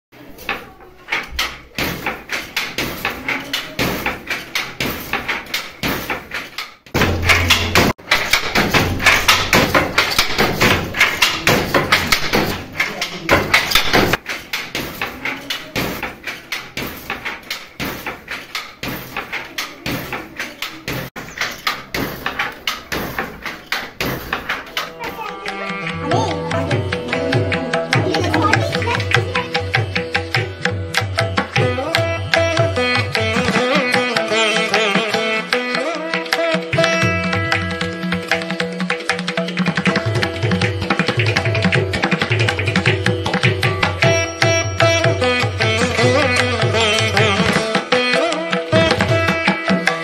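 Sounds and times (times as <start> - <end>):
wooden handloom clacking: 0.2 - 37.0.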